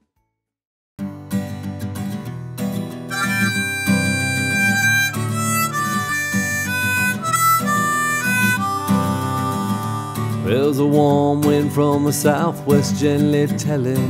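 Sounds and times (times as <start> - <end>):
strummed acoustic guitar: 1.0 - 14.0
harmonica melody: 3.0 - 11.2.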